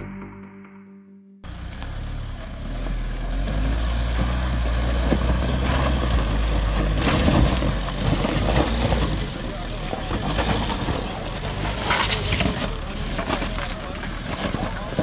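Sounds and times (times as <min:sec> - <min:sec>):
vehicle engine under load: 0:01.4 - 0:15.0
tyres crunching on stones: 0:03.4 - 0:15.0.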